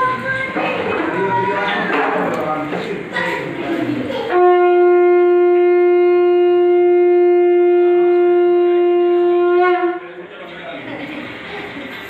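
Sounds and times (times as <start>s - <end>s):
conch shell blown: 4.3s - 10.2s.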